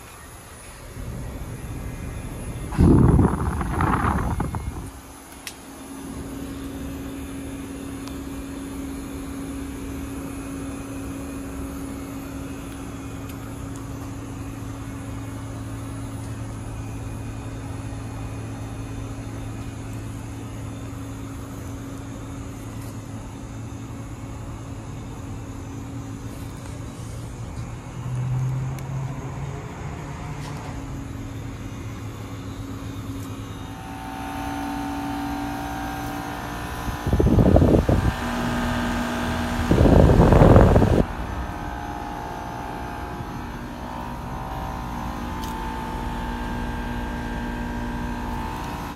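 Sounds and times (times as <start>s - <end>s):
steady high tone: 0.0s - 13.1s, 32.2s - 48.9s
compressor hum: 0.0s - 48.9s
condenser fan blowing: 0.0s - 48.9s.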